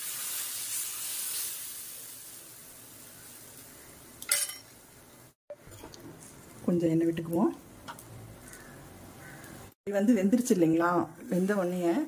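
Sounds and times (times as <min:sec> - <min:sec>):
batter sizzling on a griddle: 0:00.0 - 0:05.4.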